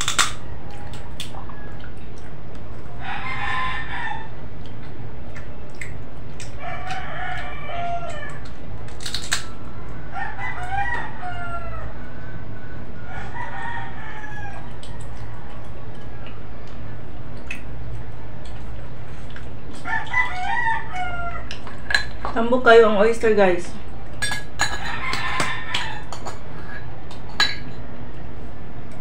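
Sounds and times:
steady low hum: 0.0 - 29.0
rooster crowing: 2.9 - 4.4, 6.6 - 8.5, 9.5 - 16.3, 19.8 - 21.9, 24.7 - 26.8.

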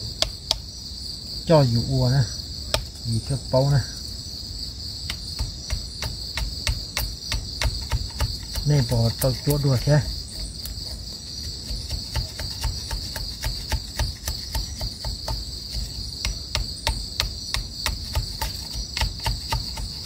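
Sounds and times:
insect chorus: 0.0 - 20.0
knife chopping wooden stick: 5.0 - 20.0.

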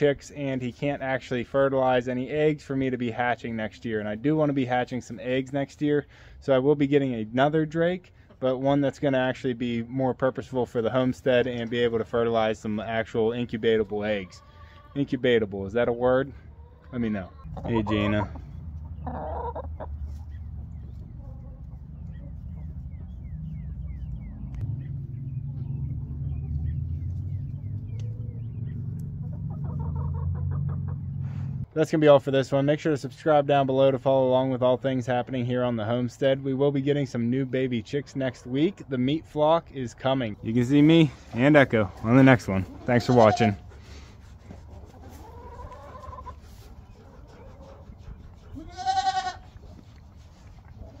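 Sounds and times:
small birds chirping: 9.7 - 31.6, 34.1 - 48.7
hen clucking: 11.9 - 31.4, 40.2 - 51.0
low steady rumble: 17.5 - 31.6
goats bleating: 42.7 - 43.6, 48.6 - 49.6.

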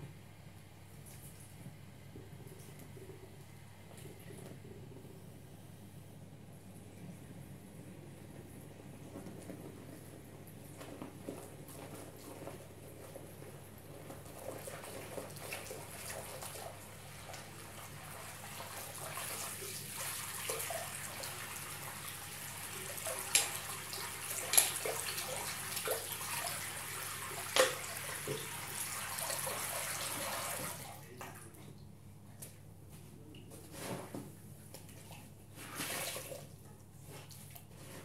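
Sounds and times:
water draining from basin: 14.3 - 31.5.

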